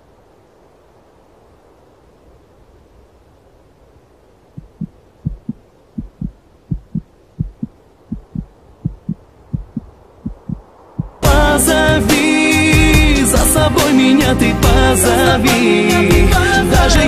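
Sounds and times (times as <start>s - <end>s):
faint low hum: 0.0s - 11.3s
heartbeat thumps: 4.6s - 11.5s.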